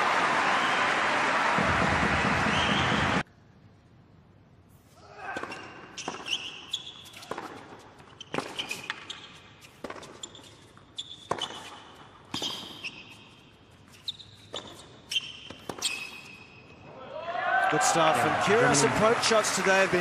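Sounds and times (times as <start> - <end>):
shoes squeaking on court: 5.4 - 16.8
racket hitting tennis ball: 7.1 - 13.2
ball bouncing on court: 7.2 - 10.4.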